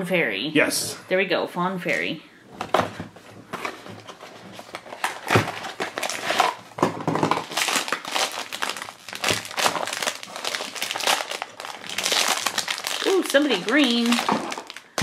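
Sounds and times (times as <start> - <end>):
foil bag crinkling: 4.0 - 15.0.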